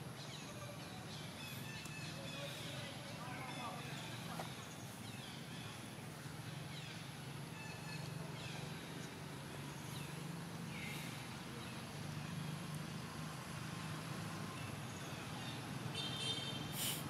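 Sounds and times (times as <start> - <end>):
brief hiss: 16.7 - 17.0.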